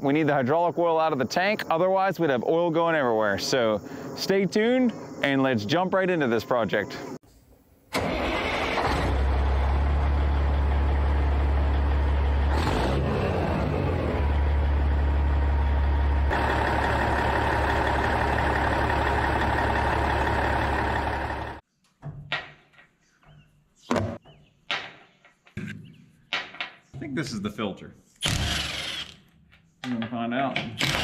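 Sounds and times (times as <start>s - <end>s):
diesel truck engine running: 8.0s - 21.6s.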